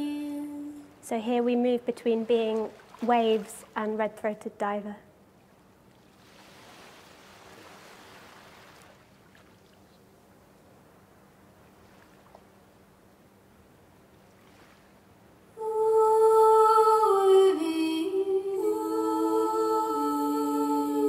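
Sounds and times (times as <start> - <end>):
voices humming long held notes: 0.0 - 1.0, 15.5 - 21.0
faint hiss: 0.0 - 3.8.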